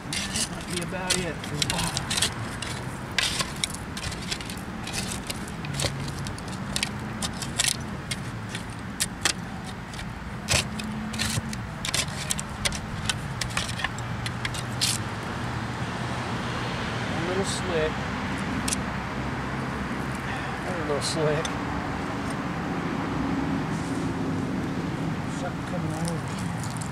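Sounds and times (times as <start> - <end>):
glass clinks and digging scrapes: 0.0 - 15.0, 26.3 - 26.9.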